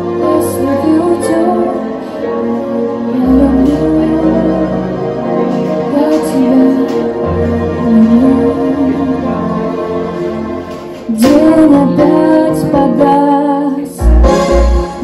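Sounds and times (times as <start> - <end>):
woman singing into microphone: 0.0 - 9.6, 11.0 - 14.4
instrumental accompaniment with keys: 0.0 - 15.0
deep bass: 14.0 - 15.0.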